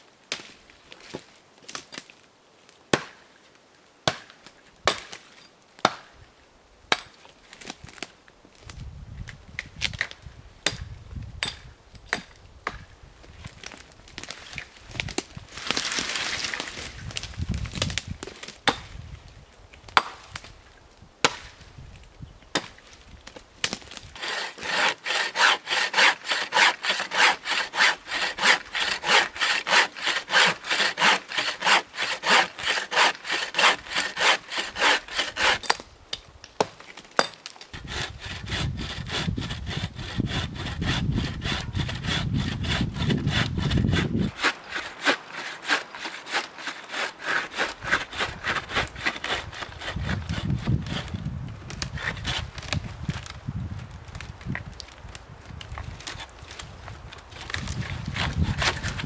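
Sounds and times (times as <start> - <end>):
bow saw cutting branch: 23.6 - 35.8, 37.7 - 53.4, 57.3 - 59.0.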